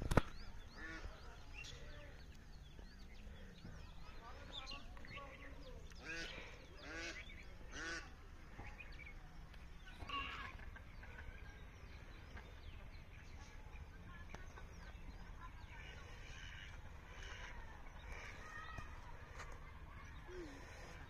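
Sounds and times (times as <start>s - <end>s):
poultry calling: 6.0s - 8.8s, 10.0s - 11.3s.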